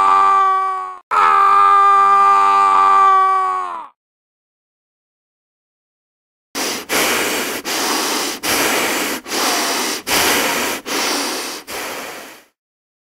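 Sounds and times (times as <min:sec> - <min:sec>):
person breathing quickly: 0:06.6 - 0:12.6.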